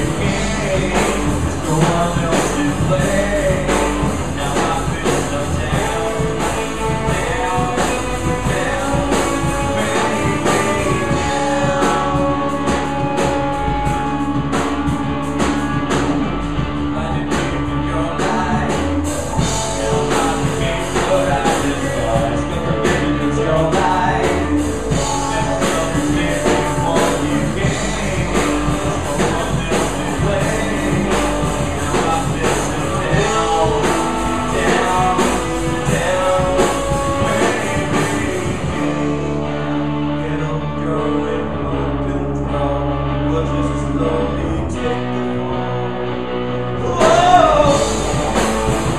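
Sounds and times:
drum kit steady beat: 0.0s - 39.4s, 46.9s - 48.9s
distorted electric guitars: 0.0s - 48.9s
male vocalist singing: 0.0s - 48.9s.

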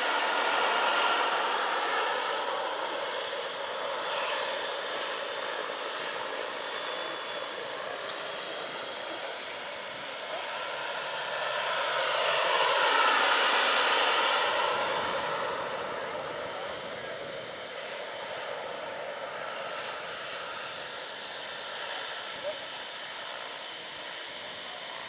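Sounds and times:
rushing rotor noise: 0.0s - 24.5s
model helicopter turbine whine: 0.0s - 25.0s.

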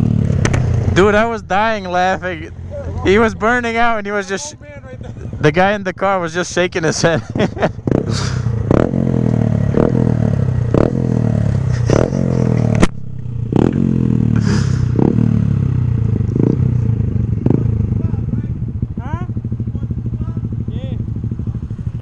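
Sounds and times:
motorcycle engine revving: 0.0s - 22.0s
motorcycle engines idling: 0.0s - 22.0s.

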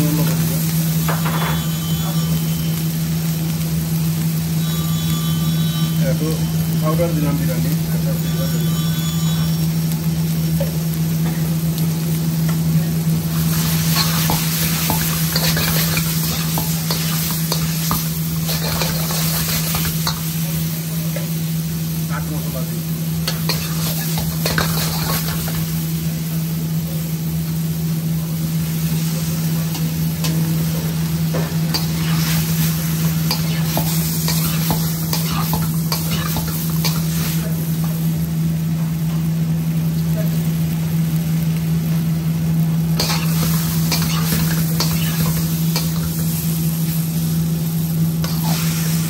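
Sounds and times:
vegetables sizzling in a wok: 0.0s - 49.0s
metal spatula scraping a wok: 13.5s - 20.3s, 23.2s - 25.6s, 31.7s - 37.5s, 43.0s - 46.2s, 48.2s - 48.8s.

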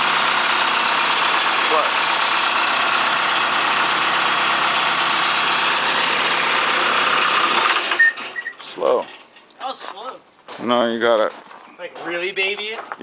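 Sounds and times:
brush chipper engine running: 0.0s - 9.6s.

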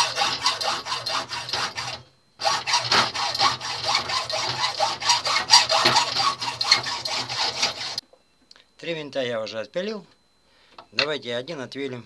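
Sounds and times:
hacksaw cutting brass: 0.0s - 8.0s.

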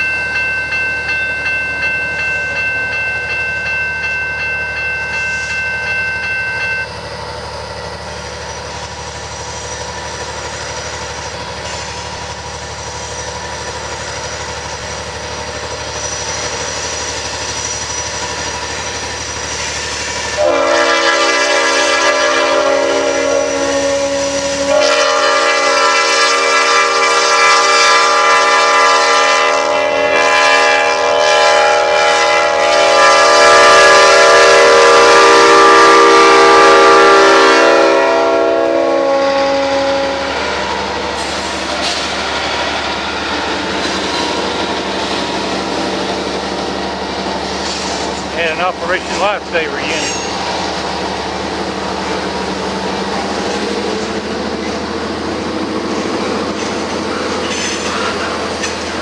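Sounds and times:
steady high tone: 0.0s - 8.1s, 42.8s - 50.8s
diesel locomotive engine: 0.0s - 59.0s
locomotive air horn: 20.3s - 40.5s, 48.4s - 50.3s.

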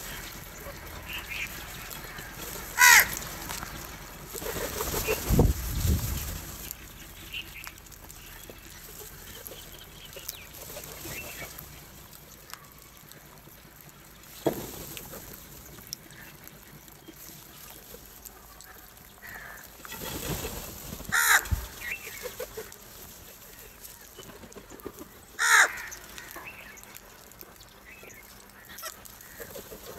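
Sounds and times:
crows cawing: 1.8s - 3.8s, 18.7s - 19.8s, 21.1s - 21.9s, 25.4s - 26.6s
wings flapping: 2.3s - 6.7s, 19.8s - 22.8s.

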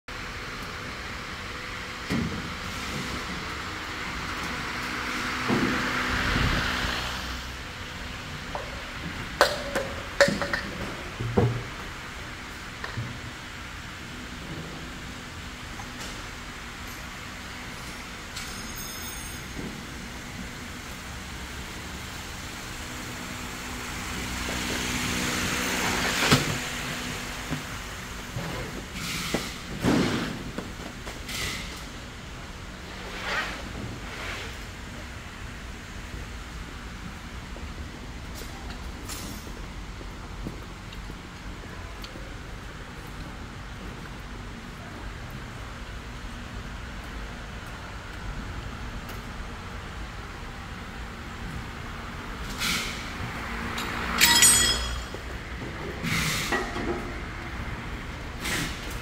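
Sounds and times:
low workshop hum: 0.1s - 59.0s
metal clanks and knocks: 8.6s - 11.7s, 53.8s - 55.8s
hiss: 52.4s - 53.6s, 56.0s - 56.8s, 58.3s - 59.0s.

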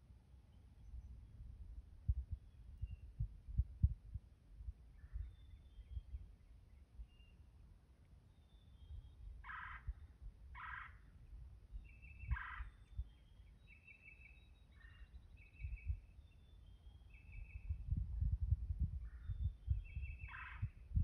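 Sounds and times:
short high turkey calls: 9.4s - 10.0s, 10.6s - 11.0s, 12.2s - 12.9s, 20.2s - 20.8s.

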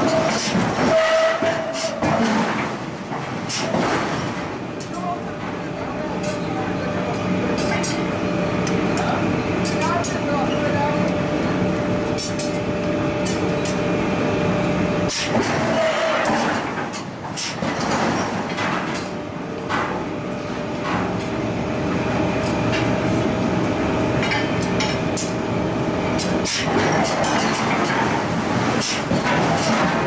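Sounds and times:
machinery hum: 0.0s - 30.0s.

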